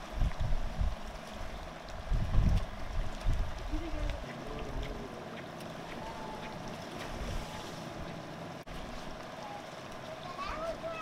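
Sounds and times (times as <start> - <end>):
wind on microphone: 0.0 - 5.2
faint water wash: 0.0 - 11.0.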